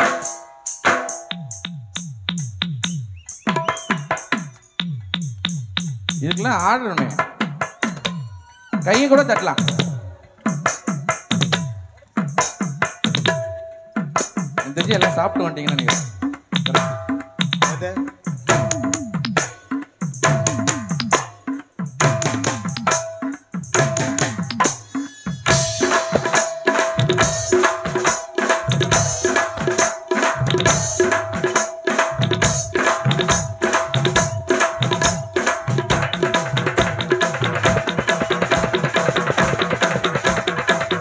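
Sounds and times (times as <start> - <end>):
live band playing: 6.3 - 41.0
hand drum strokes: 7.6 - 41.0.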